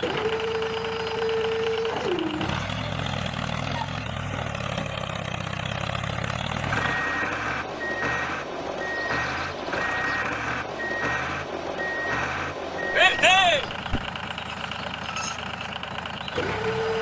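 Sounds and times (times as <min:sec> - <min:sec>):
tractor engine running: 0:00.0 - 0:17.0
vehicle reversing alarm beeps: 0:06.7 - 0:13.7.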